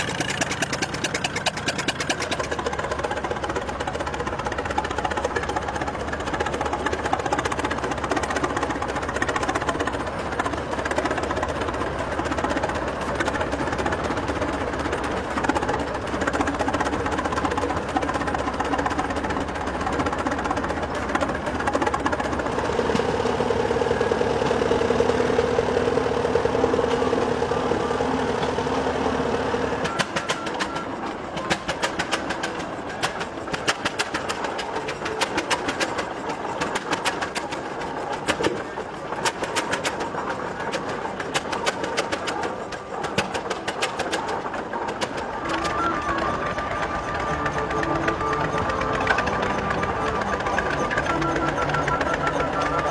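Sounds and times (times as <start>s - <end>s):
tractor engines running: 0.0s - 52.9s
steady held tone: 44.4s - 52.9s.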